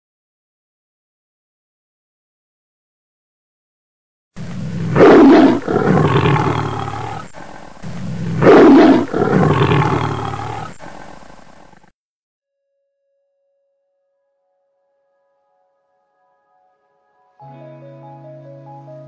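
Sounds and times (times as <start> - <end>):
big cat roaring and growling: 4.4 - 11.9.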